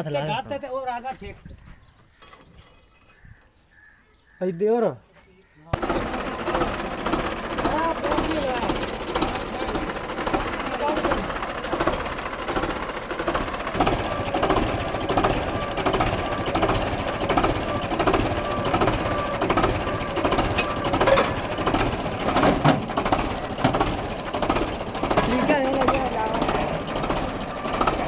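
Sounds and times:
diesel tractor engine clattering: 5.7s - 28.0s
sharp clanks: 5.7s - 28.0s.

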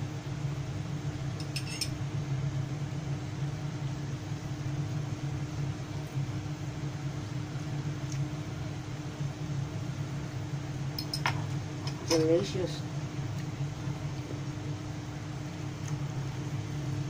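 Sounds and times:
low machine hum with hiss: 0.0s - 17.0s
fork clinking on saucer: 1.4s - 1.9s.

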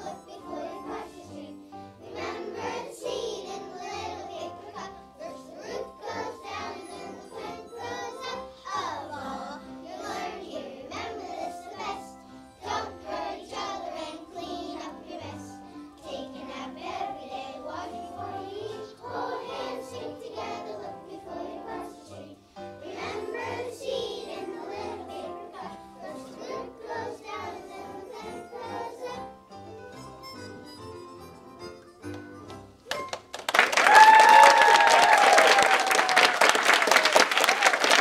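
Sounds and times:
children singing: 0.0s - 29.4s.

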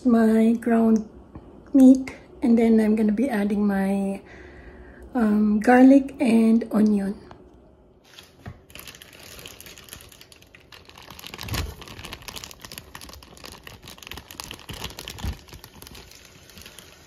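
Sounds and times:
meat crackling in oil: 8.0s - 17.0s
plastic bag crinkling: 8.0s - 17.0s.

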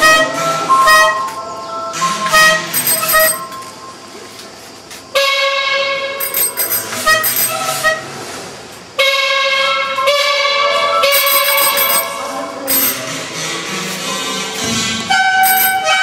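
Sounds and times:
small bells: 2.8s - 3.8s, 6.2s - 7.8s, 11.2s - 13.1s, 15.5s - 16.0s.

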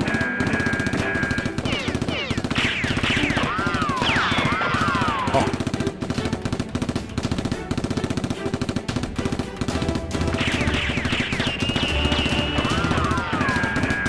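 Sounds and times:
rapid machine-gun fire: 0.0s - 14.0s
high whistling tones: 10.7s - 14.0s.

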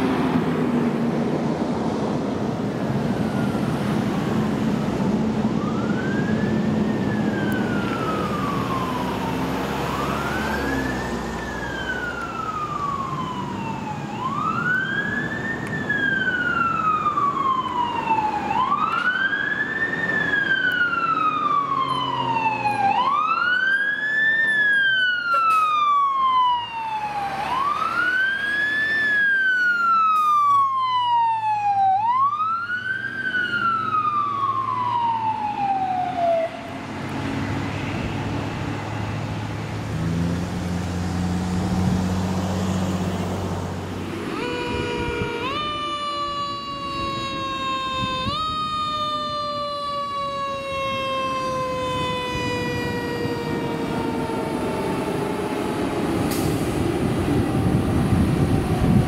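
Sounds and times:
truck engines rumbling: 0.0s - 59.0s
siren wailing: 3.0s - 36.8s, 44.0s - 59.0s.

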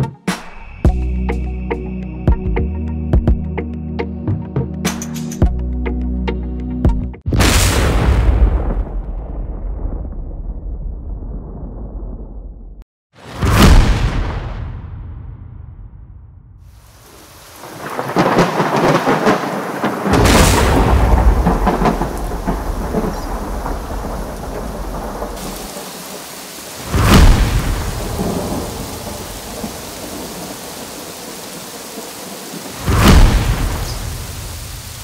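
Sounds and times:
rolling thunder: 7.3s - 12.8s, 13.4s - 35.0s
sharp thunder cracks: 7.3s - 16.6s, 17.5s - 35.0s
steady rain: 16.7s - 35.0s.

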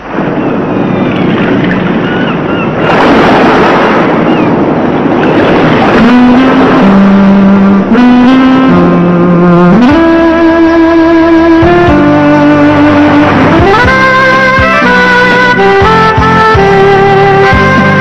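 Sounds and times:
ocean surf washing: 0.0s - 18.0s
held musical notes: 6.0s - 18.0s.

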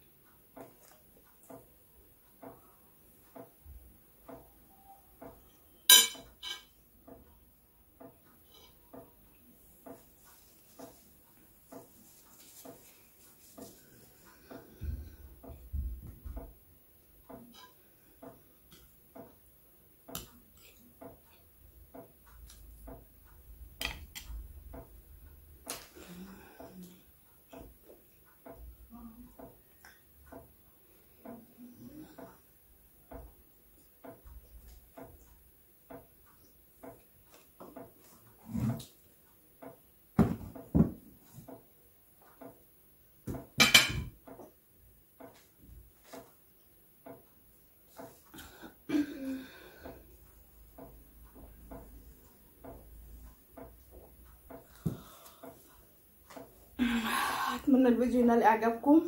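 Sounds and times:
dishes clattering on a table: 5.2s - 7.2s, 43.3s - 44.6s
metal spoon clinking on china: 5.9s - 6.7s.

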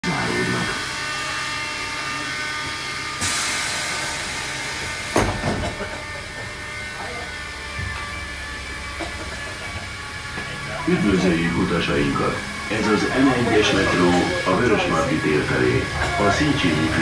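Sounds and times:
metro car electrical hum: 0.0s - 17.0s
sharp clunk: 5.1s - 5.8s.

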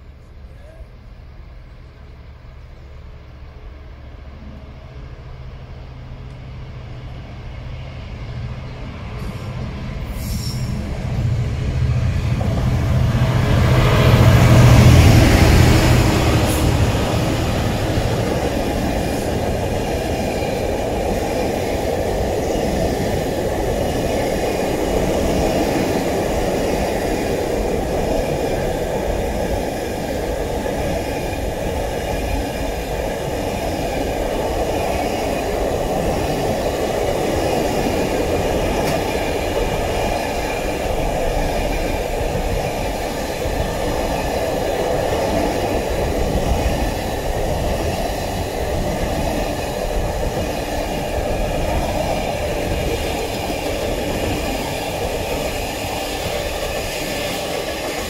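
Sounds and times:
diesel locomotive passing: 0.0s - 58.0s
train wagons rumbling and clattering: 3.6s - 58.0s.

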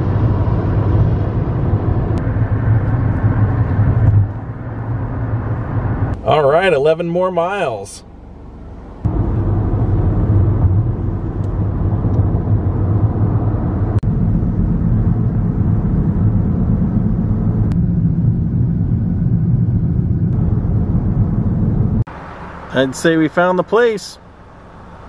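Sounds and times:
car engine and tyre rumble: 0.0s - 25.0s.

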